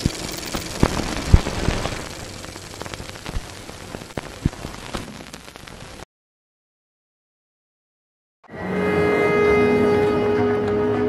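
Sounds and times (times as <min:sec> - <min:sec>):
sharp pops and clicks: 0:00.0 - 0:06.0
crackling static hiss: 0:00.0 - 0:06.1.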